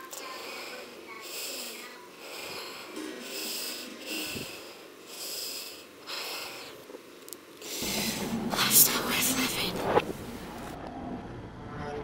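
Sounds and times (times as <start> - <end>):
woman breathing hard: 0.2 - 6.8, 7.6 - 8.4.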